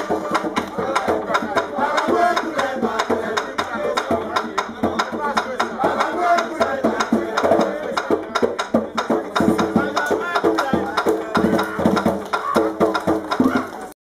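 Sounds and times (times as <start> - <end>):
hand drum playing: 0.0 - 13.9
voices singing: 0.0 - 14.0.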